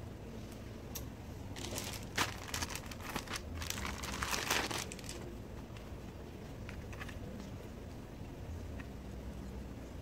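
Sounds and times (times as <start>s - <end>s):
plastic bag crinkling: 1.6s - 5.3s.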